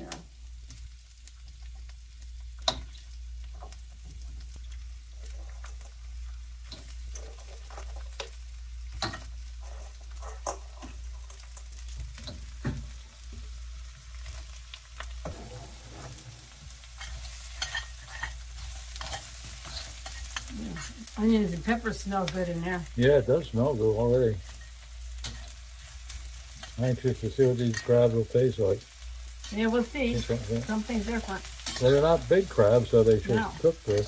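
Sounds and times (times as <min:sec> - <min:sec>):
food sizzling in hot oil: 0:00.0 - 0:34.0
crabs knocking and clattering in wok: 0:06.7 - 0:09.4, 0:10.0 - 0:13.5.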